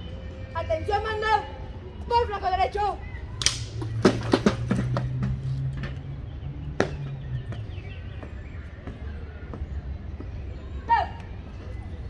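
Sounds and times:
boots striking pavement: 3.4 - 6.0, 6.7 - 10.5.

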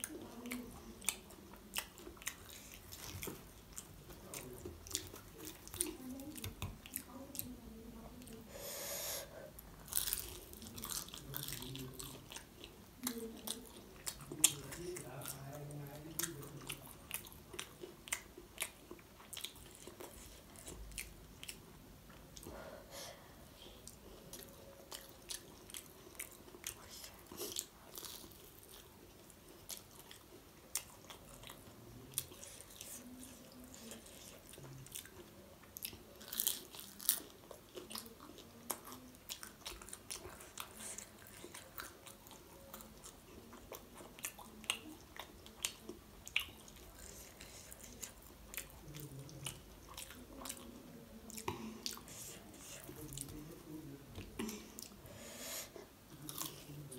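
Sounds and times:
chewing crunchy fried food: 0.0 - 8.4, 9.5 - 22.6, 23.6 - 56.9.

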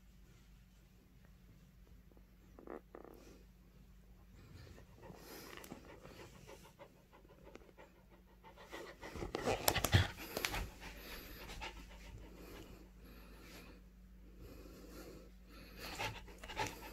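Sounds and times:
dog panting: 4.4 - 13.7, 14.5 - 16.9.

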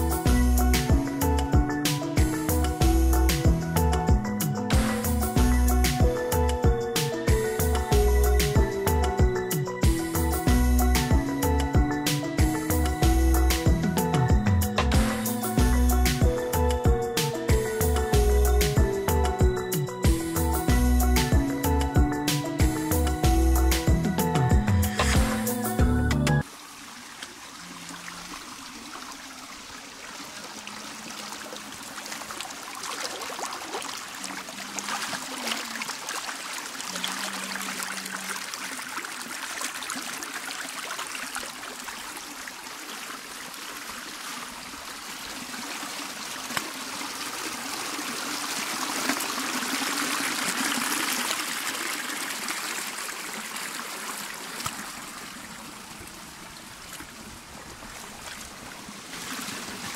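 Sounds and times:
stream splashing over stones: 26.4 - 59.9.

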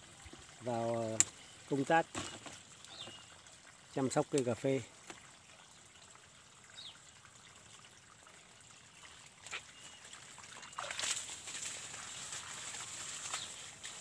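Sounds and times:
hose water spraying on ground: 9.2 - 14.0.

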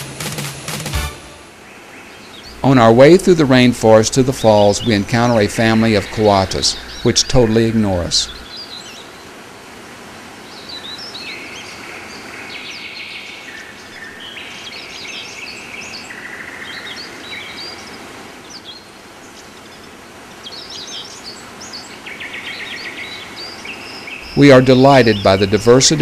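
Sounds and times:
background hiss: 0.0 - 26.0
birds chirping: 1.5 - 9.4, 10.3 - 26.0
buzzy bird trills: 2.4 - 8.8, 21.7 - 26.0.

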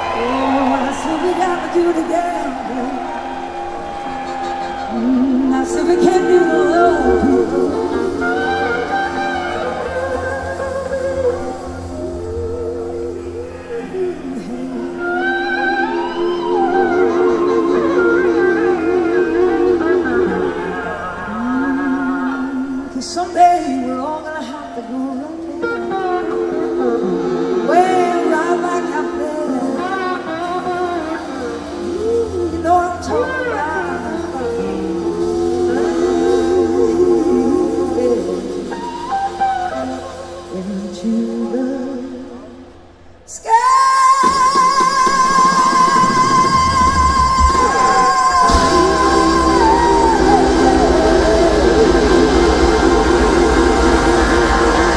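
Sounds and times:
woman singing: 0.0 - 3.2, 4.6 - 54.9
electric slide guitar: 2.5 - 42.5, 45.2 - 54.9
live rock band playing: 25.7 - 40.8, 45.0 - 54.9
drums: 44.0 - 54.9.

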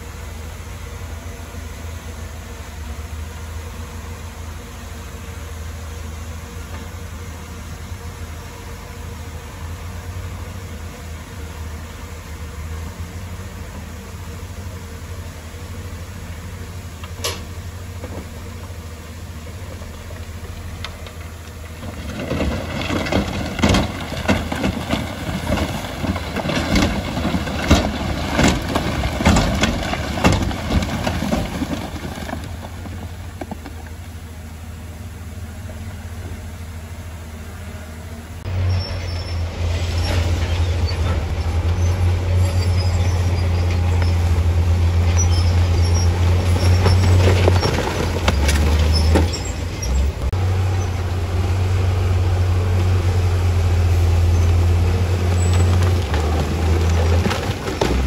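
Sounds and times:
diesel engine running: 0.0 - 58.0
crunching and clattering impacts: 19.6 - 34.0, 39.6 - 50.8, 54.1 - 58.0.

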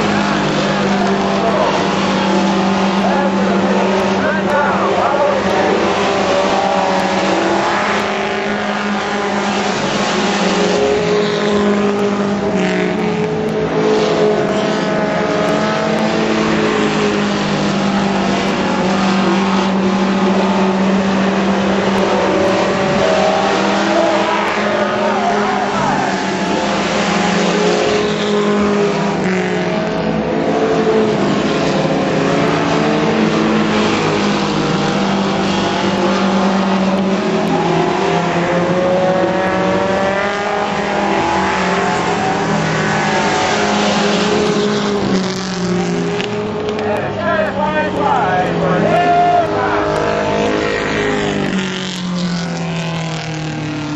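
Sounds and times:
race car engines droning: 0.0 - 53.9.

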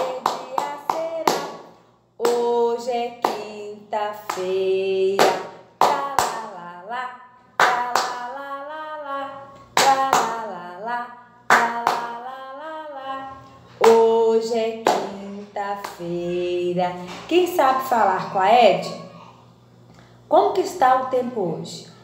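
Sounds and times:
hands clapping: 0.0 - 2.4, 5.2 - 6.4, 9.8 - 10.4, 11.5 - 12.1
woman singing: 0.0 - 18.7.

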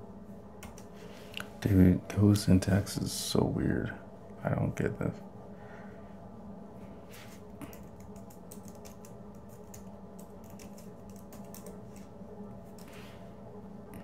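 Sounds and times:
steady low hum: 0.0 - 14.0
keyboard typing clicks: 0.6 - 0.9, 7.6 - 12.0.

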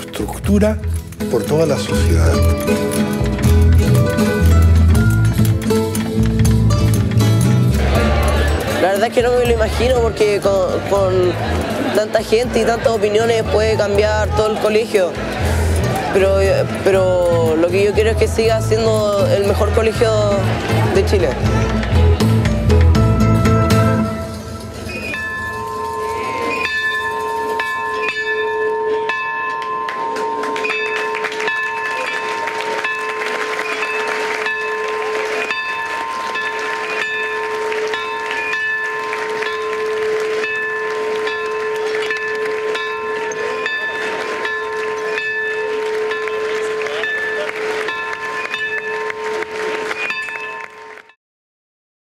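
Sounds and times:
bell-like ringing: 23.2 - 51.2.

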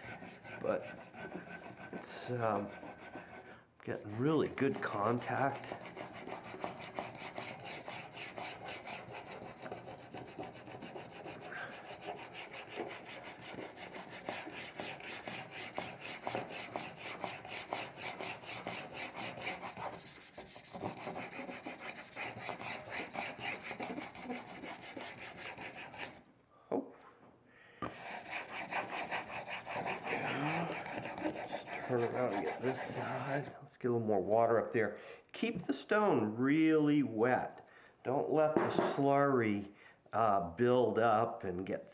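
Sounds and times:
blade grinding on whetstone: 0.0 - 3.5, 4.1 - 26.2, 27.9 - 33.5.

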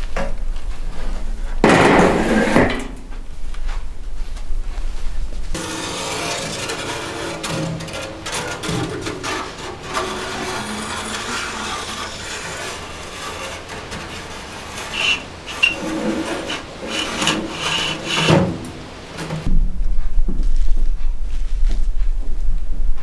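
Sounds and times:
metal stovepipe scraping and knocking: 1.6 - 3.0, 5.6 - 19.5
short squeaks: 5.9 - 18.2.

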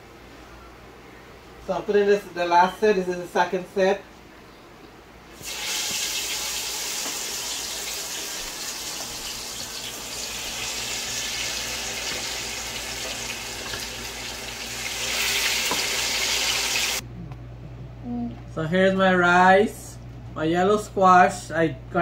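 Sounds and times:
fish sizzling in hot oil: 5.4 - 17.0.

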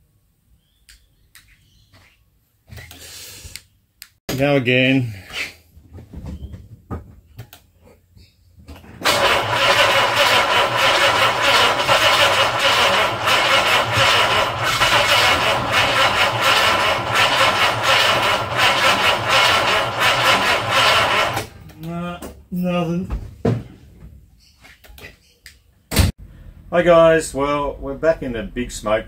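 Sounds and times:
starter motor cranking engine: 9.0 - 21.5.

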